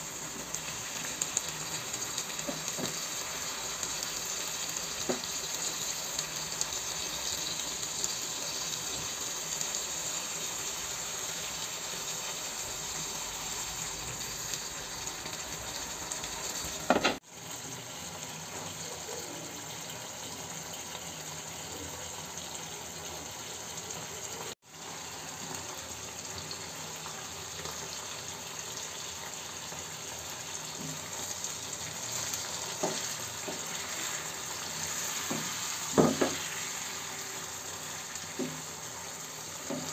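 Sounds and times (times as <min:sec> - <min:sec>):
food sizzling in a frying pan: 0:00.0 - 0:39.9
knock: 0:35.3 - 0:36.4.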